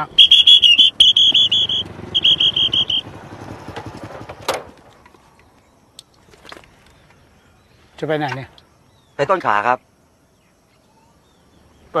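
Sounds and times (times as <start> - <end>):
police whistle blasts: 0.0 - 3.1
motorcycle engine running: 0.0 - 4.7.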